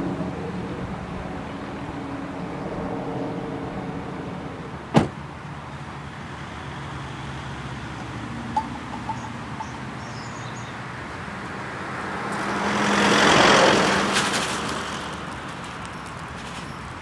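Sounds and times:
car humming: 0.0s - 17.0s
car door slamming: 4.9s - 5.2s.

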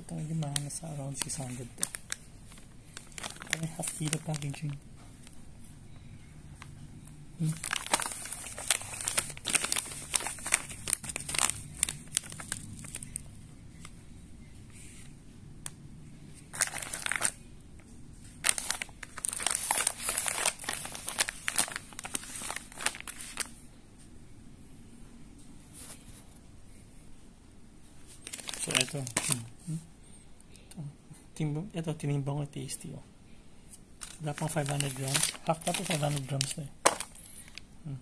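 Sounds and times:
plastic pouches crinkling: 0.0s - 5.4s, 7.4s - 13.9s, 16.5s - 17.4s, 18.4s - 23.6s, 28.2s - 29.5s, 34.0s - 37.7s.

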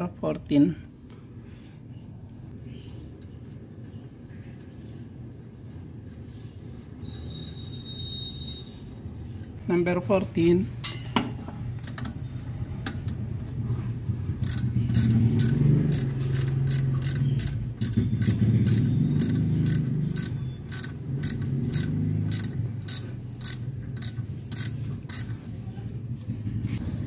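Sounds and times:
ratcheting wrench clicking: 14.3s - 25.4s.

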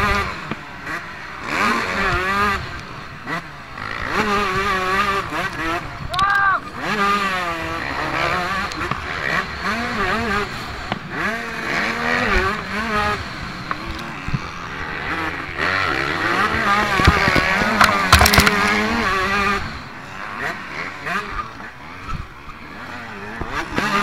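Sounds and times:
motocross bike engine revving: 0.0s - 24.0s
sharp knocks: 17.0s - 18.7s.

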